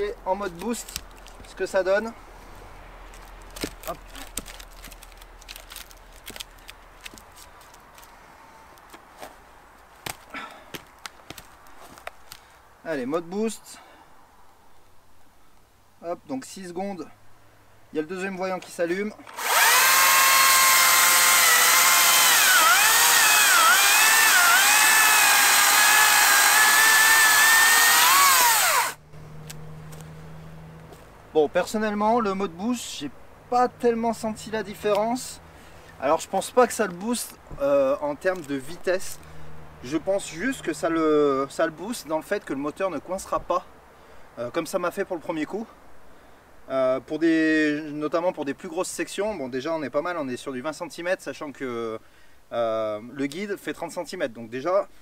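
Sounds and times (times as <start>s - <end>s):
wooden log knocking and scraping: 0.5s - 1.6s, 3.1s - 8.1s, 10.0s - 12.4s
chainsaw cutting through log: 19.3s - 29.0s.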